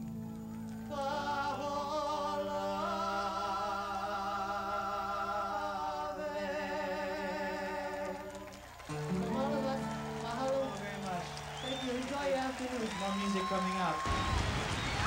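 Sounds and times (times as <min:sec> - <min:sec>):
voices singing with vibrato: 0:00.8 - 0:11.6.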